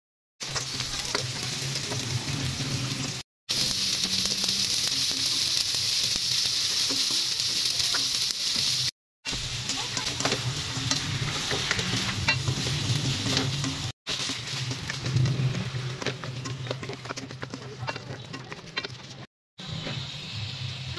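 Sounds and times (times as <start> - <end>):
food sizzling in oil: 0.4 - 20.9
stirring scraping clicks: 10.0 - 19.3.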